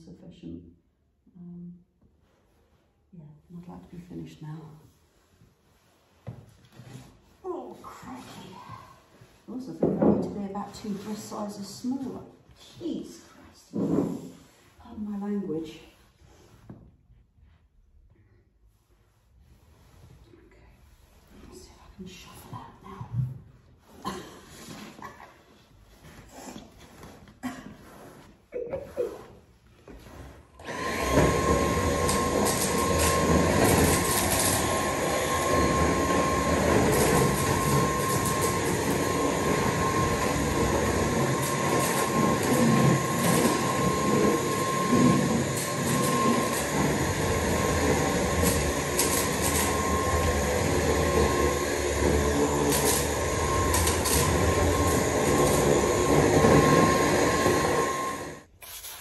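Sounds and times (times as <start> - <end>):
vacuum cleaner running: 29.9 - 58.5.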